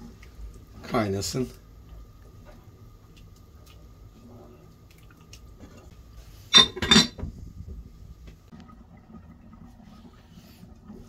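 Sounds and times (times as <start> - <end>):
glass lid clinking on metal pot: 6.5 - 7.2.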